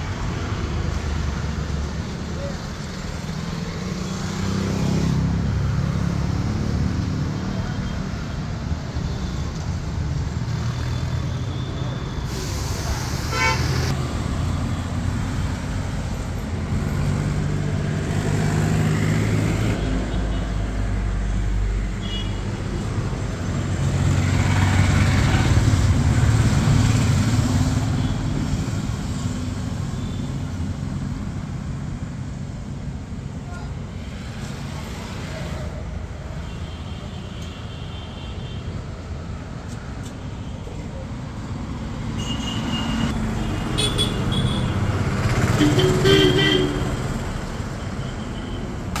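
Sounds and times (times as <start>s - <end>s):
vehicles passing: 0.0s - 49.0s
car horn: 13.3s - 13.9s, 42.2s - 44.7s, 45.5s - 47.1s.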